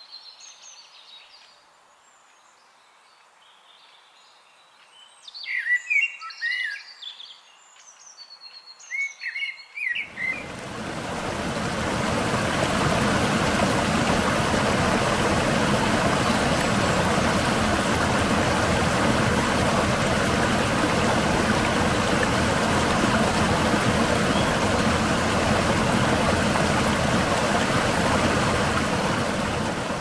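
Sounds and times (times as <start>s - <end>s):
stream over rocks: 10.0s - 30.0s.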